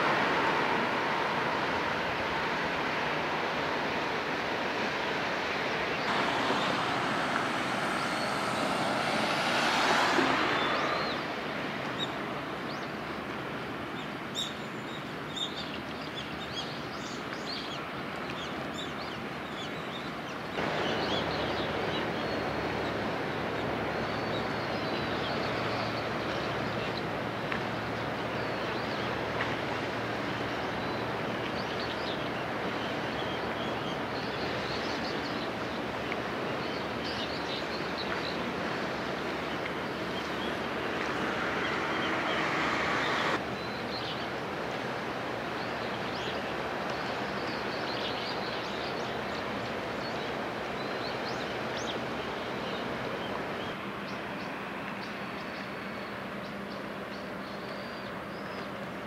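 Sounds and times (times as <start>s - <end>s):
rushing swell: 0.0s - 5.2s, 6.1s - 11.4s, 39.3s - 43.4s
outdoor background noise: 0.0s - 59.0s.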